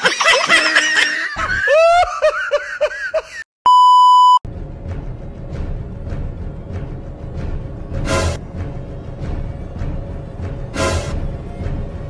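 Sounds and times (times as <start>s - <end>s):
loud steady beep: 3.7s - 4.4s.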